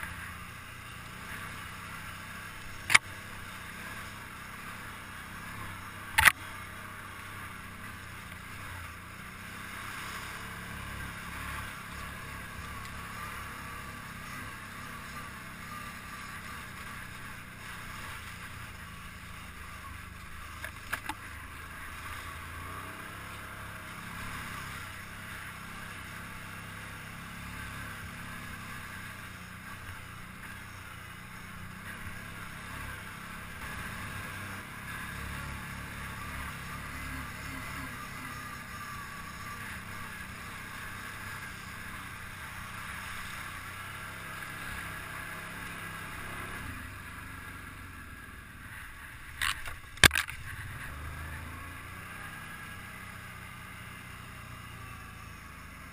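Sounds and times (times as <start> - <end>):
atv engine running: 0.0 - 55.9.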